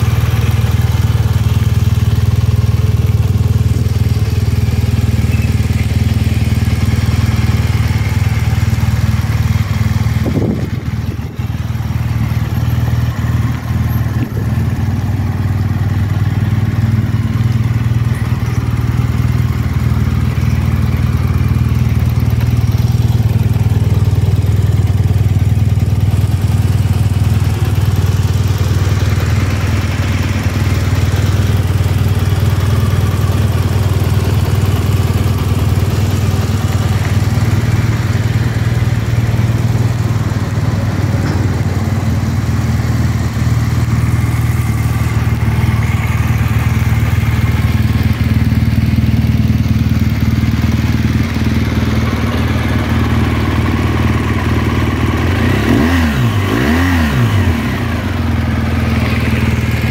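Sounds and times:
motorcycle engine idling: 0.0s - 59.9s.

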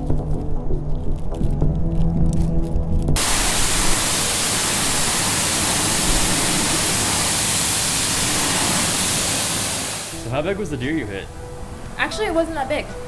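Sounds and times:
music: 0.0s - 3.2s, 10.1s - 13.0s
high-pressure water spray hissing: 3.2s - 10.3s.

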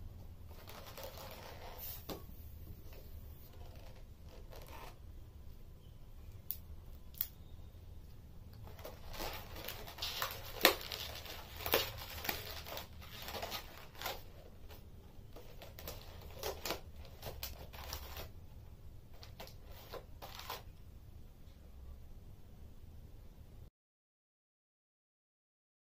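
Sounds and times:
faint low hum: 0.0s - 23.7s
balloons rubbing and crinkling: 0.4s - 5.0s, 8.6s - 18.4s.

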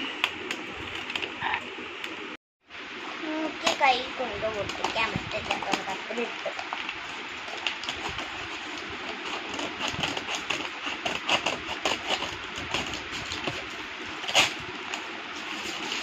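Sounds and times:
scissors snipping paper: 7.5s - 14.6s.

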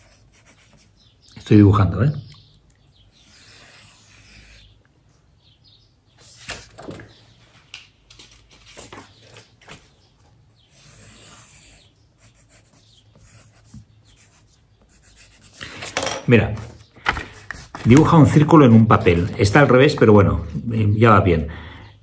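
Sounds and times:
pencil scratching on paper: 0.0s - 1.0s, 3.1s - 4.7s, 6.2s - 6.7s, 10.7s - 16.0s, 17.7s - 19.7s.

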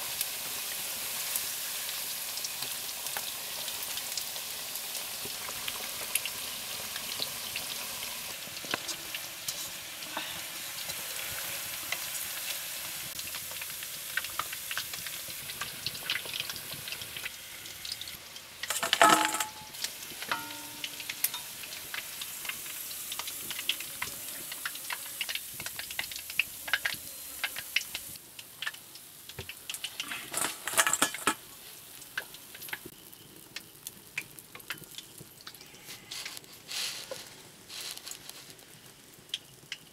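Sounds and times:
chicken sizzling in hot oil: 0.0s - 39.9s
wooden spatula scraping a wok: 8.8s - 11.0s, 35.8s - 38.6s.

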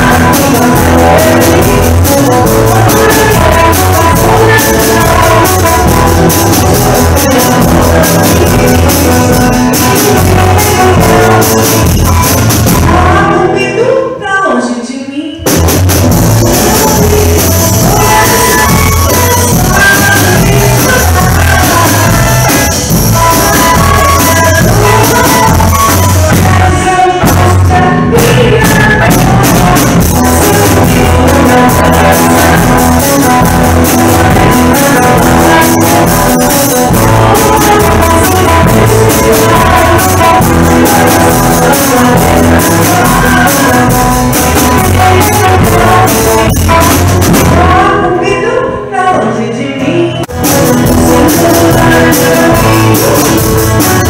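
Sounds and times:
electric bass line: 0.0s - 13.6s, 15.4s - 48.2s, 50.2s - 54.0s
woman singing into a microphone: 0.0s - 15.4s, 16.4s - 54.0s
live band playing: 0.0s - 54.0s.

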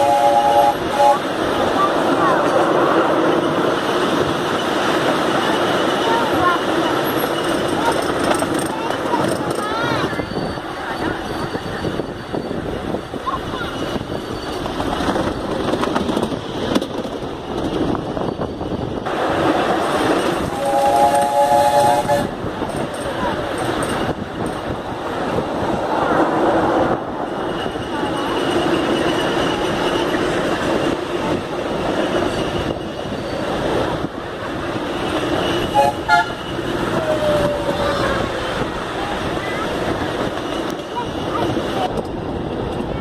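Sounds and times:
train whistle toots: 0.0s - 1.2s, 20.4s - 22.4s, 35.4s - 38.1s
train wheels rumbling on rail: 0.0s - 43.0s.

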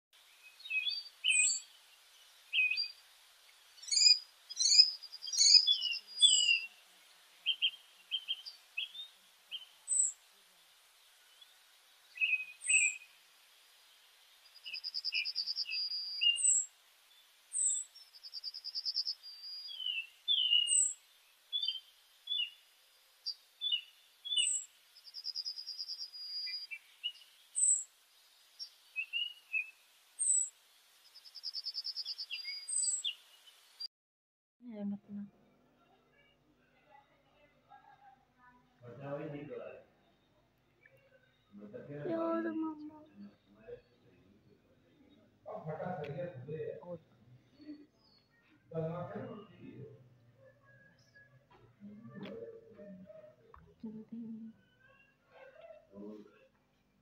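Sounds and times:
birds chirping: 0.2s - 33.9s, 38.8s - 56.5s
bird trills: 0.6s - 1.7s, 3.8s - 6.8s, 12.2s - 13.2s, 14.6s - 16.7s, 17.5s - 22.6s, 23.3s - 27.9s.

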